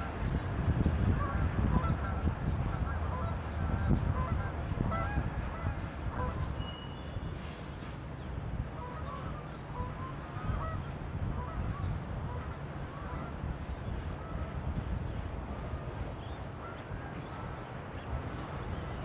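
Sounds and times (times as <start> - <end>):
honking bird calls: 8.7 - 15.1.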